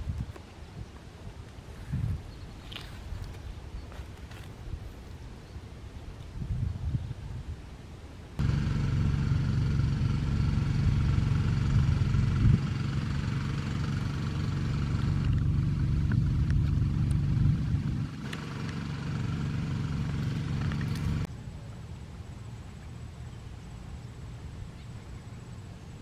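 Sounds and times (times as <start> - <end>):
engine running steadily: 8.4 - 26.0.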